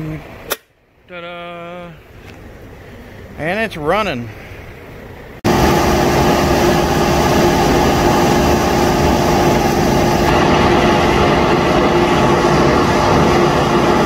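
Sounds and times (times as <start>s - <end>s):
dryer blower fan running: 5.4s - 14.0s.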